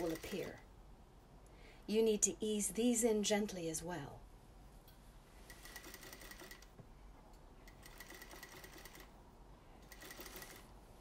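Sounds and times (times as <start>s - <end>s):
sewing machine whining: 5.6s - 6.7s, 7.7s - 9.1s, 9.8s - 10.6s.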